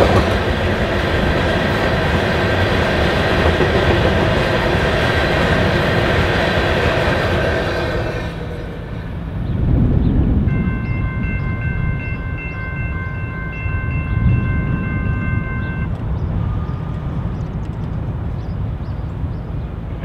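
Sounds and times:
train rumbling: 0.0 - 20.0
railroad crossing bell ringing: 10.4 - 16.0
faint on-off beep: 10.5 - 15.9.

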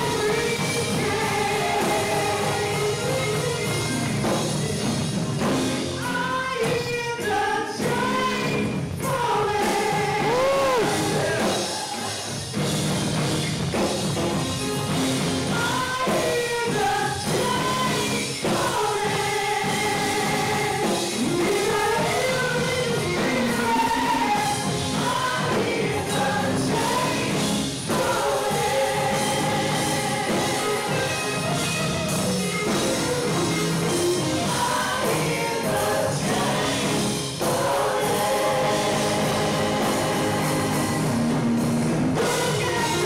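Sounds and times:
gospel band playing: 0.0 - 43.0
woman singing into a microphone: 6.0 - 11.4, 15.5 - 31.2, 42.2 - 43.0.

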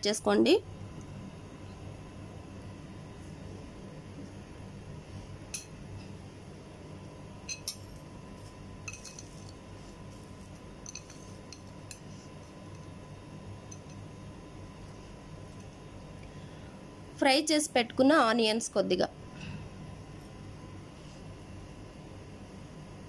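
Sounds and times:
steady low hum: 0.0 - 23.0
utensils clinking on dishes: 7.5 - 7.9, 8.8 - 9.6, 10.8 - 12.1.

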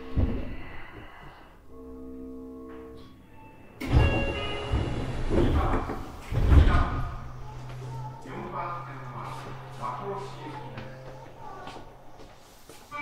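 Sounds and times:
sustained chime tones: 1.6 - 6.3, 7.1 - 12.7
train doors closing thud: 3.8 - 7.3.

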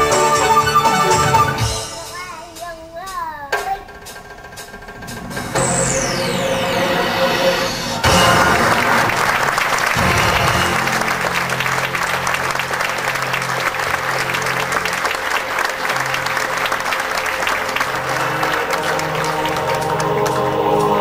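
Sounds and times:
music with long low notes: 4.0 - 21.0
audience applauding: 8.0 - 21.0.

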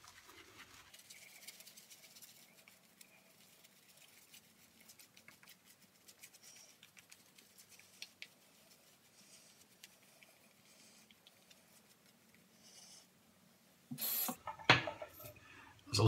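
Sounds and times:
shaving brush lathering on skin: 0.0 - 12.6.

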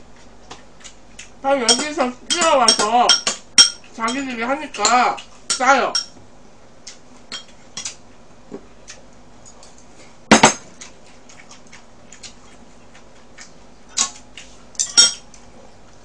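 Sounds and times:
chopsticks and spoons clinking bowls: 1.7 - 6.2, 7.3 - 8.0, 14.8 - 15.3.

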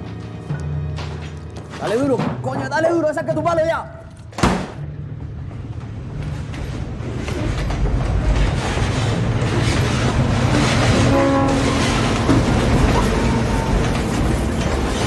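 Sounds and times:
diesel locomotive engine rumble: 4.8 - 15.0
rolling train wheels: 4.9 - 15.0.

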